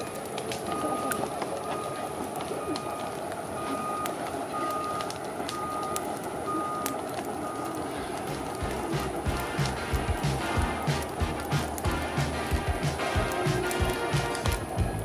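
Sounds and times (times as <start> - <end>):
reversing alarm beeping: 0.0 - 9.1
rushing background noise: 0.0 - 15.0.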